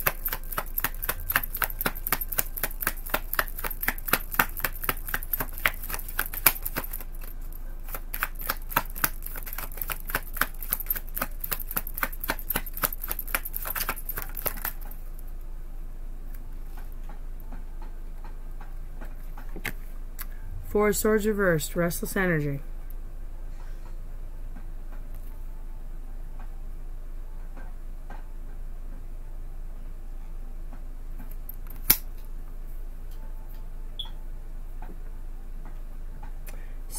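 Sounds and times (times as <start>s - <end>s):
cards being shuffled: 0.0s - 15.0s
faint low hum: 0.0s - 36.9s.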